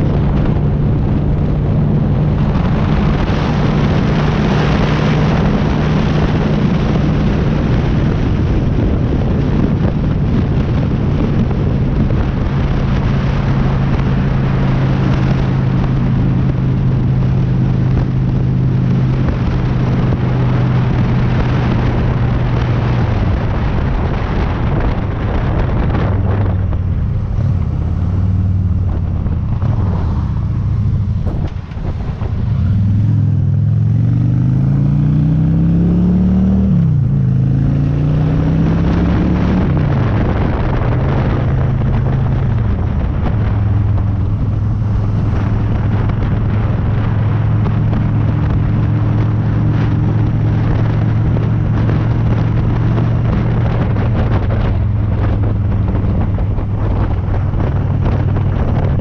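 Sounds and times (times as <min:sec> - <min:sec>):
motorcycle engine accelerating: 0:00.0 - 0:59.0
wind noise: 0:00.0 - 0:59.0.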